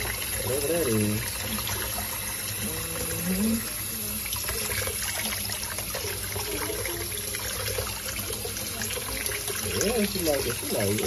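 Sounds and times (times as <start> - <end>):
tap water splashing into sink: 3.3 - 11.0.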